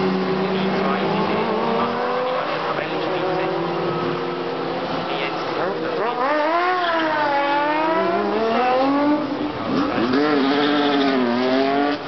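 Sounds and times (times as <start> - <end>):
race car engine at full throttle: 0.0 - 12.0.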